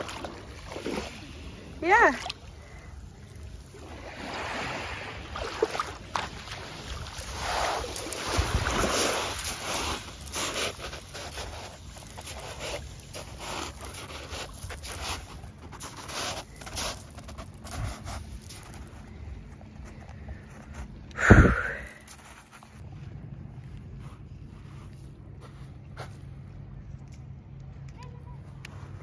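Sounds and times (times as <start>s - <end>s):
waves washing over pebbles: 0.0s - 18.9s
wind rumble on microphone: 6.6s - 9.9s, 17.4s - 22.0s
footsteps crunching on pebbles: 7.3s - 21.0s.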